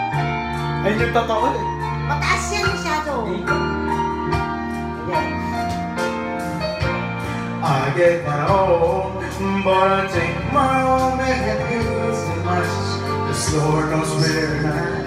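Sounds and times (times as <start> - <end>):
recorded music track: 0.0 - 15.0
man singing into microphone: 7.6 - 15.0.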